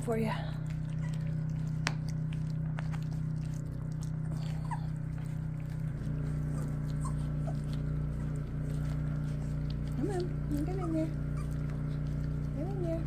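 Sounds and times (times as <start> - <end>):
puppies chewing: 0.0 - 13.0
steady low hum: 0.0 - 13.0
puppy squeaks: 0.9 - 1.4, 4.5 - 4.9, 6.5 - 7.7, 10.0 - 11.8.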